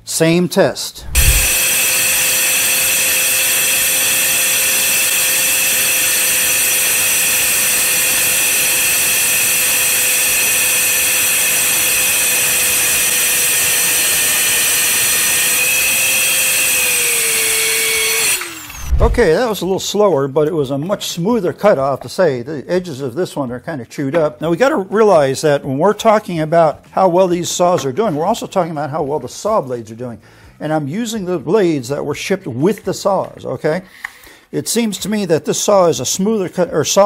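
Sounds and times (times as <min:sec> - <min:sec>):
circular saw cutting board: 0:01.0 - 0:07.2, 0:07.8 - 0:19.5.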